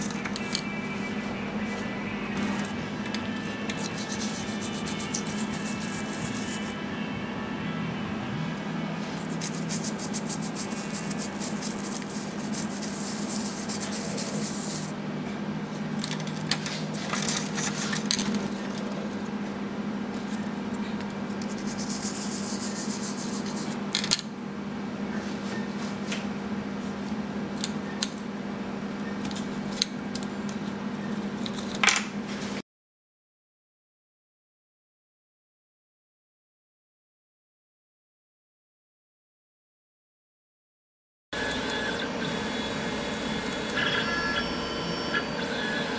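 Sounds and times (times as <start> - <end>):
steady low hum: 0.0 - 31.6, 41.4 - 45.9
plastic spoon scraping plastic cup: 3.4 - 6.8, 9.2 - 14.9.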